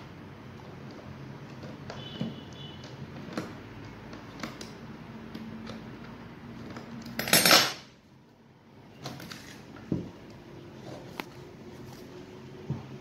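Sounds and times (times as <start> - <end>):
screwdriver clattering on tabletop: 7.0 - 7.9.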